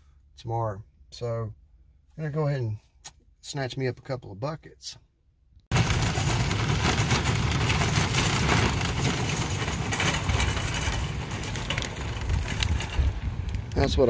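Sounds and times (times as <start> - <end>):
cart and buckets rattling: 5.7 - 14.0
cart wheels rumbling on asphalt: 5.7 - 14.0.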